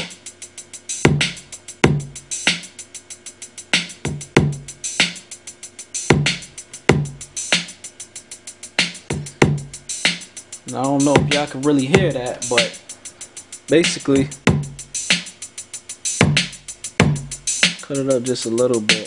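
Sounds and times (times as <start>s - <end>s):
hi-hat ticks: 0.0s - 19.0s
kick and snare drum hits: 4.1s - 5.1s, 11.0s - 12.7s, 14.4s - 15.2s, 16.2s - 17.8s.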